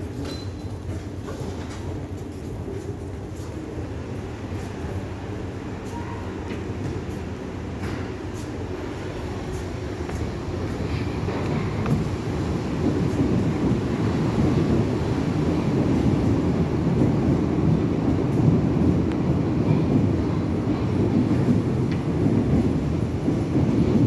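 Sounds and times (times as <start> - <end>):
underground train rumbling: 0.0 - 24.0.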